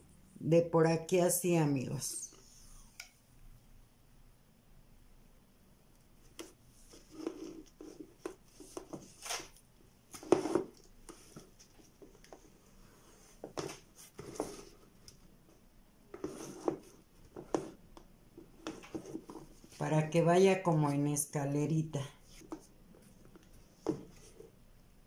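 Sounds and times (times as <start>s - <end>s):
rustles and taps of handling: 6.3s - 9.5s, 10.1s - 12.6s, 13.4s - 19.8s, 22.3s - 24.5s.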